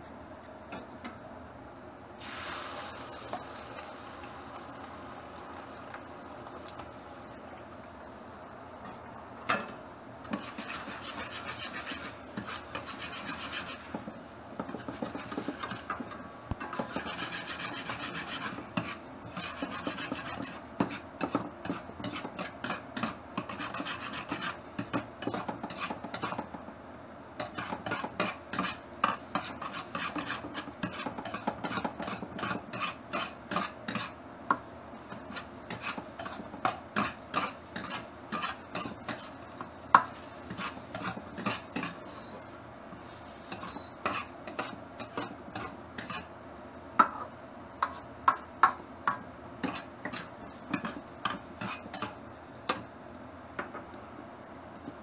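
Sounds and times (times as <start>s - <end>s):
ladle scraping a wok: 10.2s - 26.5s, 27.4s - 34.2s, 35.0s - 46.3s, 47.0s - 48.8s, 49.6s - 52.2s.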